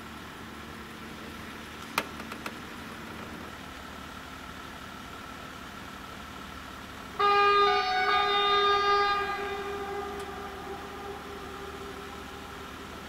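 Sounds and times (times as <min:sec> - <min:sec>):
train horn long blast: 0:07.1 - 0:13.0.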